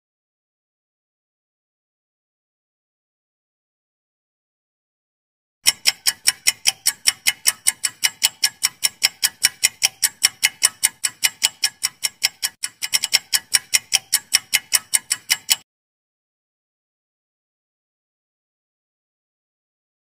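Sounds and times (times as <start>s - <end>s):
fast clock ticking: 5.6s - 15.6s.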